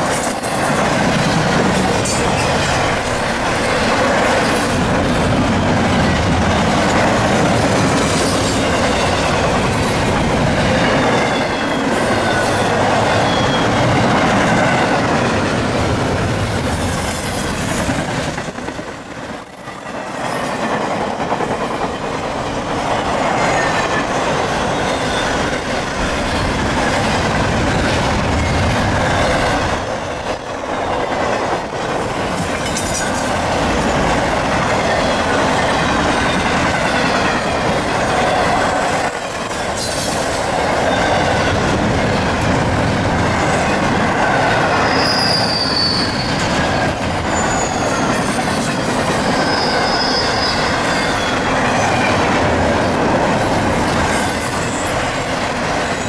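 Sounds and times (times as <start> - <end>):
wheels clacking over rail joints: 0.0 - 44.6
train wheels rumbling on rails: 0.0 - 56.0
high-pitched flange squeal: 10.9 - 13.8, 44.7 - 52.2.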